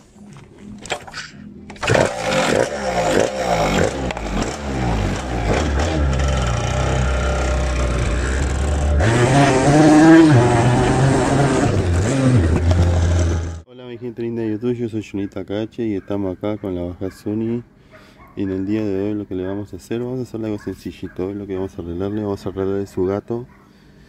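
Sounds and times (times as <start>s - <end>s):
motorcycle engine revving: 1.8s - 13.6s.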